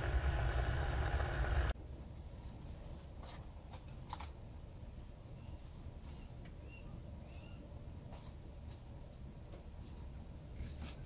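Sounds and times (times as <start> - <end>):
low steady hum: 0.0 - 2.5.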